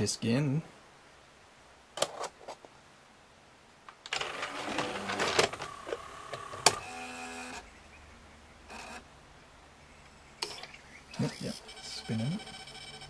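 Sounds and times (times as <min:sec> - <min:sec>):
disc tray mechanism rattling: 0:04.1 - 0:07.6.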